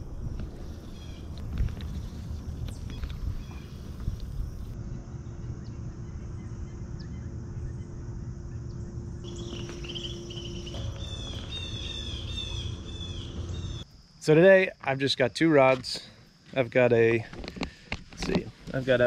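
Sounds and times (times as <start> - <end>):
outdoor low rumble: 0.0 - 13.8
bird chirping: 2.1 - 13.8.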